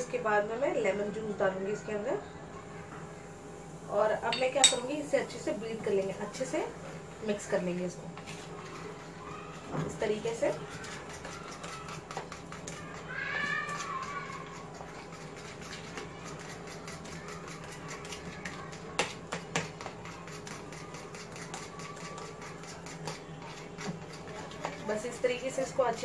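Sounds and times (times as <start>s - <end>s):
spoon tapping against bowl: 4.3s - 5.0s.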